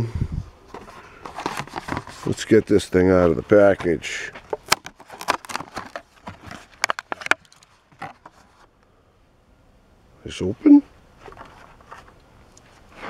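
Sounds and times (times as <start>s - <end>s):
plastic blister pack crackling: 3.7s - 8.3s.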